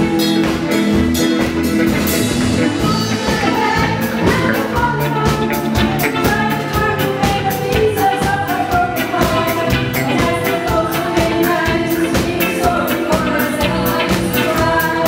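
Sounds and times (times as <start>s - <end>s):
drum beat: 0.0s - 8.2s
live band playing pop: 0.0s - 15.0s
women singing: 2.8s - 15.0s.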